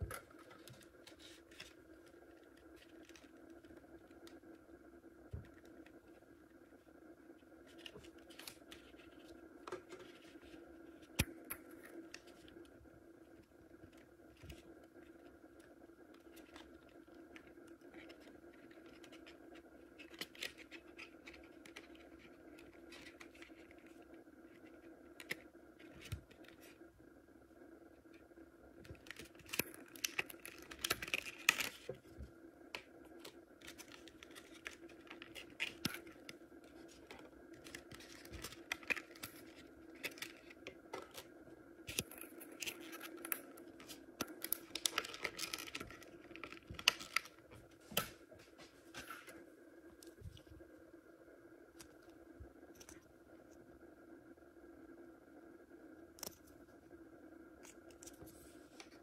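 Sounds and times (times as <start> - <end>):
steady low hum: 0.0 - 59.0
plastic card clicks and scratches: 13.8 - 26.8.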